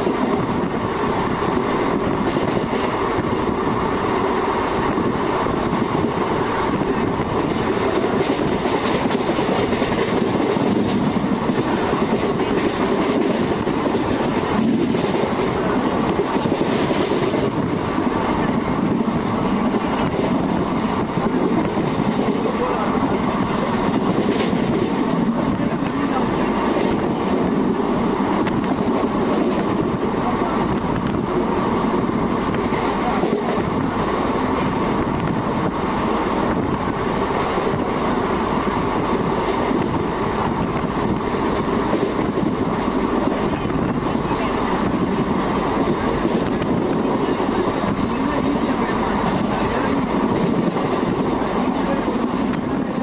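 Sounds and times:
train running on rails: 0.0 - 53.0.

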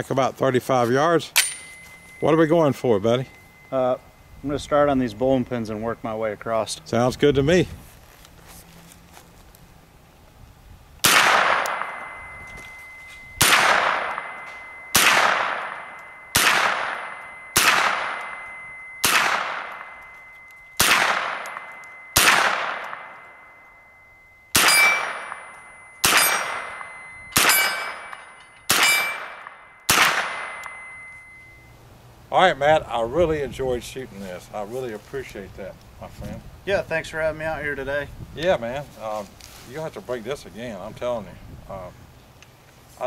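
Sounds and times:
steel target clanging: 1.1 - 7.1, 11.0 - 31.7
gunshots with echo: 11.0 - 12.4, 13.4 - 20.0, 20.8 - 23.4, 24.5 - 30.8.

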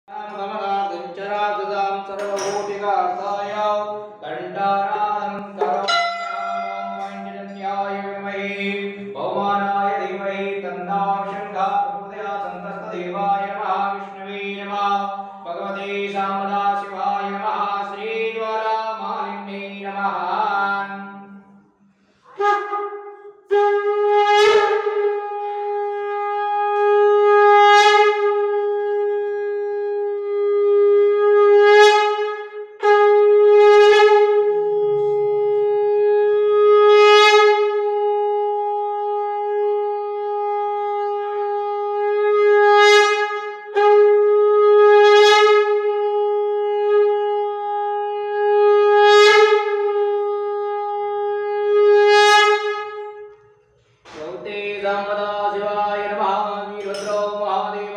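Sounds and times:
conch shell blasts: 2.2 - 3.2, 5.4 - 8.0
breaths: 21.7 - 22.4.

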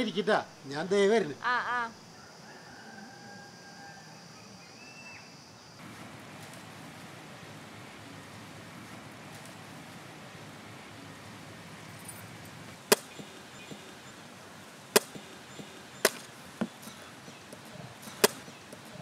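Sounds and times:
knife chopping coconut husk: 12.9 - 13.9, 15.0 - 17.0, 18.1 - 18.6.

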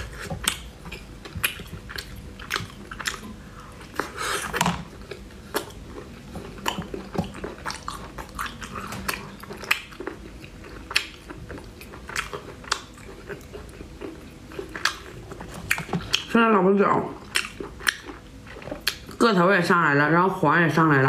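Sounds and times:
wet chewing and smacking: 0.0 - 16.4, 17.1 - 19.3.

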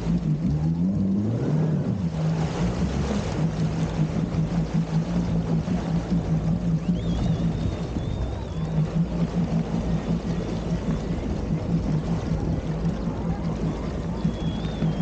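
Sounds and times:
jet ski engine running: 0.0 - 15.0
water rushing along hull: 0.0 - 15.0
high wavering whistle: 6.7 - 10.7, 13.6 - 15.0.

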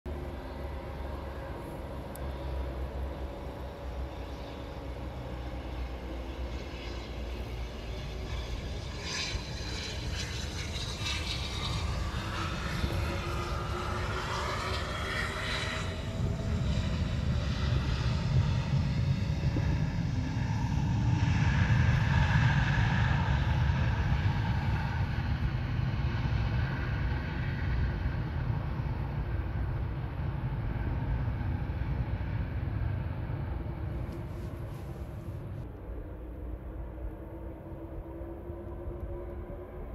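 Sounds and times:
jet engines whining: 0.1 - 39.9
low rumble: 0.1 - 39.9.

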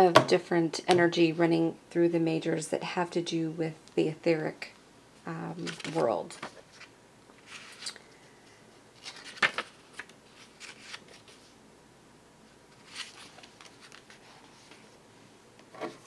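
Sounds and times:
cards rustling and tapping: 9.0 - 11.4.

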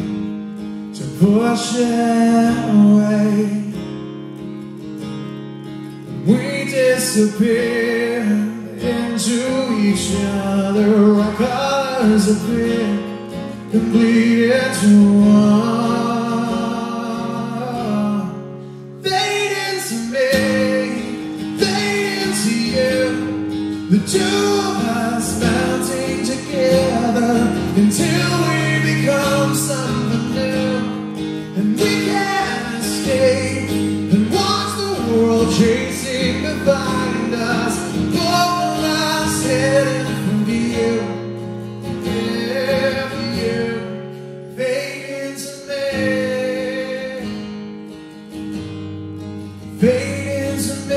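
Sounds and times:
strummed acoustic guitar: 0.0 - 50.9
man singing: 0.9 - 3.8, 6.2 - 47.6, 49.6 - 50.9.

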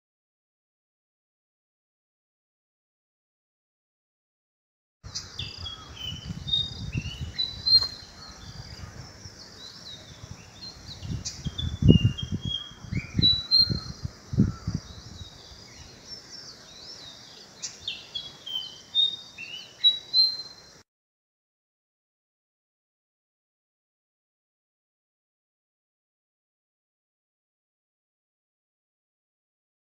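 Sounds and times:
bird singing whistled notes: 5.1 - 20.8.

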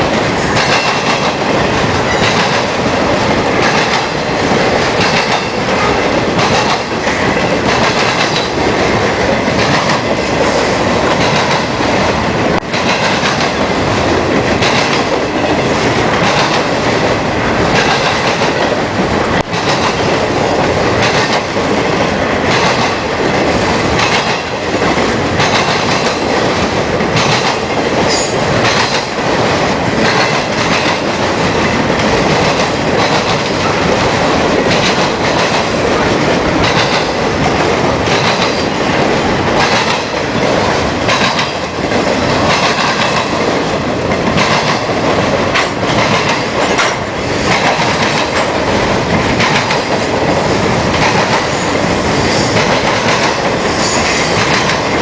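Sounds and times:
freight train rumbling past: 0.0 - 55.0
wheels clacking over rail joints: 0.0 - 55.0.

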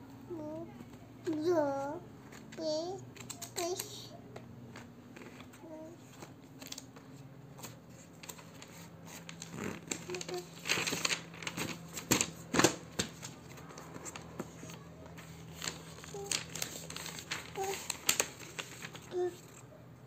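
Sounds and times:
paper pages rustling: 4.7 - 19.7.

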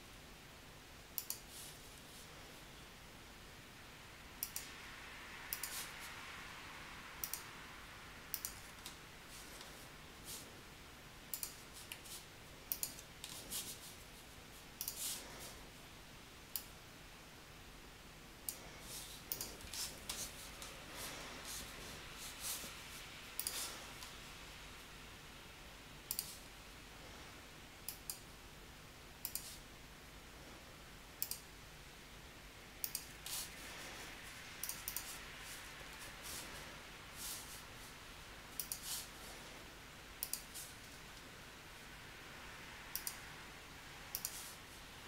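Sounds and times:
low room hiss: 0.0 - 45.0
computer mouse clicking: 1.2 - 1.5, 4.4 - 4.7, 5.5 - 5.9, 7.2 - 7.5, 8.3 - 9.7, 11.3 - 12.1, 12.7 - 13.7, 14.8 - 15.2, 18.5 - 20.8, 23.4 - 24.1, 26.1 - 26.4, 27.8 - 28.3, 29.2 - 29.6, 31.2 - 31.5, 32.8 - 33.4, 34.6 - 35.2, 38.6 - 39.1, 40.2 - 40.7, 42.9 - 43.2, 44.1 - 44.5.

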